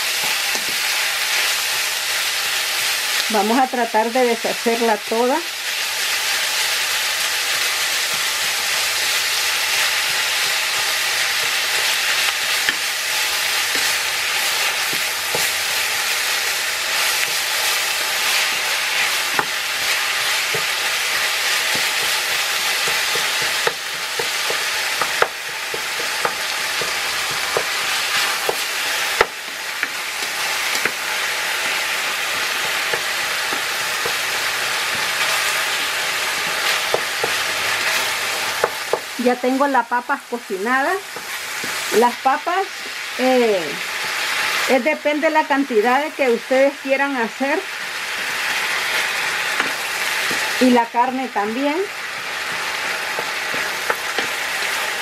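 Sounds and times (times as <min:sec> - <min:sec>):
meat sizzling in a frying pan: 0:00.0 - 0:55.0
spatula stirring meat: 0:05.7 - 0:39.4, 0:40.7 - 0:43.2, 0:47.2 - 0:55.0.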